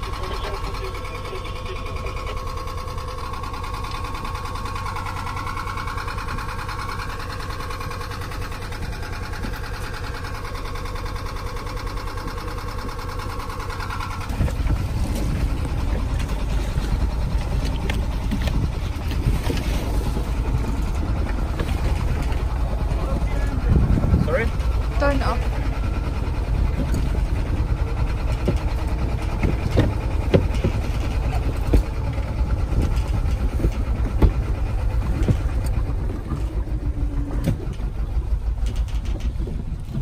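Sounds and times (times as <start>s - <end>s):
boat engine humming: 0.0s - 40.0s
wind buffeting microphone: 14.2s - 40.0s.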